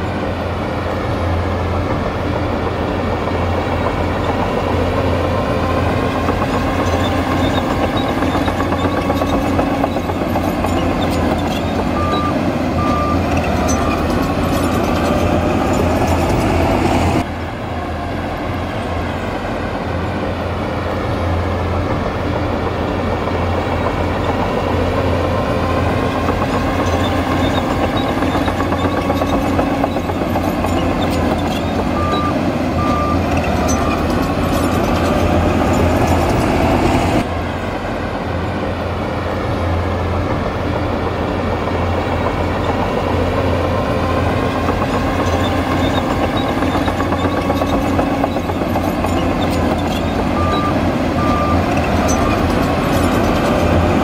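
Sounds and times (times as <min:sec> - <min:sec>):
heavy machinery diesel engine: 0:00.0 - 0:54.0
reversing alarm beeping: 0:06.5 - 0:16.4, 0:26.4 - 0:36.7, 0:44.8 - 0:53.9.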